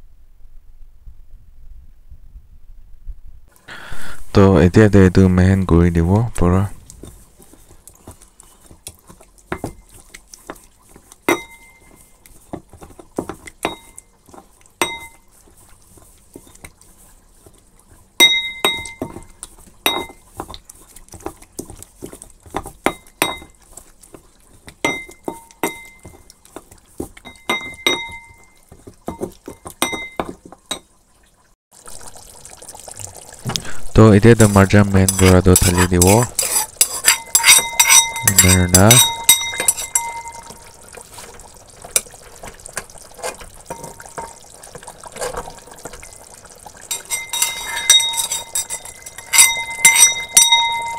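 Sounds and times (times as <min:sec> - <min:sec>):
pestle pounding in metal mortar: 0:35.1 - 0:40.6, 0:46.9 - 0:50.9.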